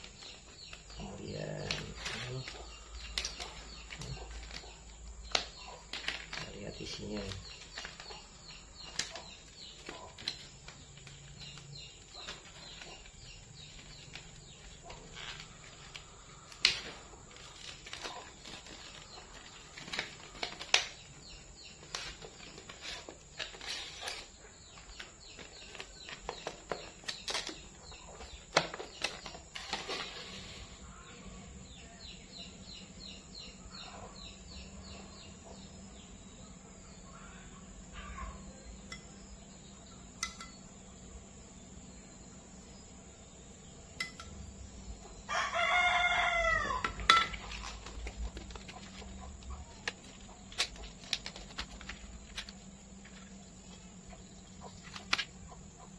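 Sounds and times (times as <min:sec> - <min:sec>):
paper rustling: 0:01.6 - 0:21.1, 0:21.7 - 0:27.7, 0:28.5 - 0:30.8, 0:47.4 - 0:53.4
plastic packaging crinkling: 0:05.3 - 0:08.3, 0:47.4 - 0:53.3.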